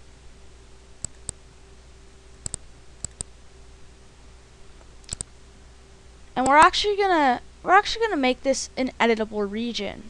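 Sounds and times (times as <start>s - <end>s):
faint steady hum: 0.0s - 10.0s
mouse button clicks: 5.1s - 5.3s.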